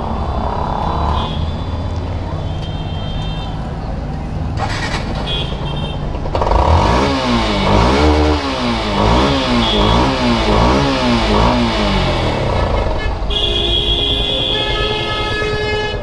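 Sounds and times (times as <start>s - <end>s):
motorcycle engine revving: 4.5s - 15.9s.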